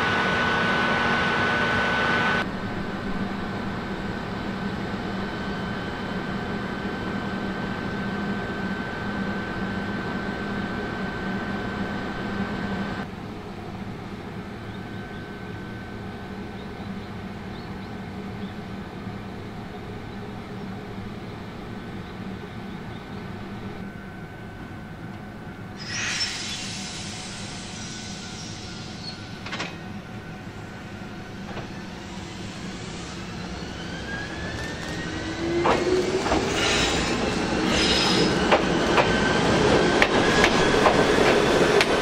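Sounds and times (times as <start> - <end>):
train equipment humming: 0.0 - 42.0
thin high whine: 25.7 - 34.3.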